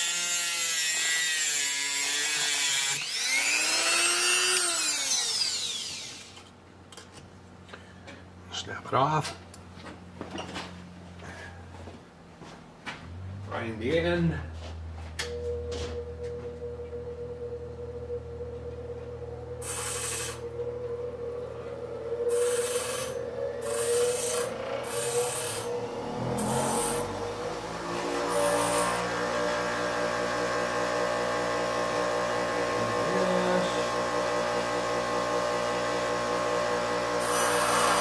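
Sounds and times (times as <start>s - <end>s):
grinder whining: 0.0s - 6.5s, 15.2s - 38.0s
metal hissing on grinder: 19.6s - 20.6s, 22.2s - 35.0s, 37.2s - 38.0s.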